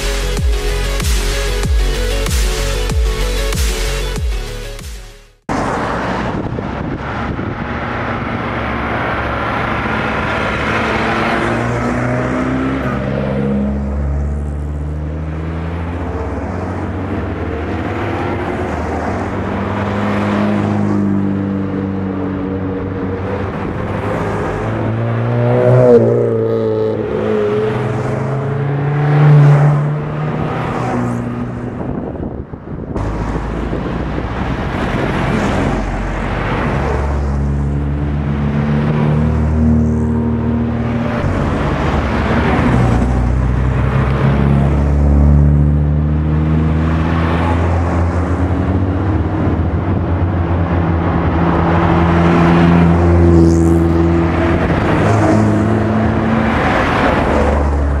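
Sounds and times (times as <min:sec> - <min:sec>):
car engines revving past: 0:05.5 - 0:58.0.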